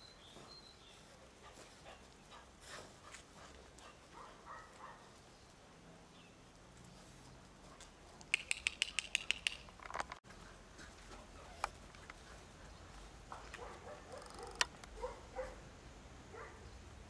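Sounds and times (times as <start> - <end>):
sharp high ticks: 8.2 - 9.8.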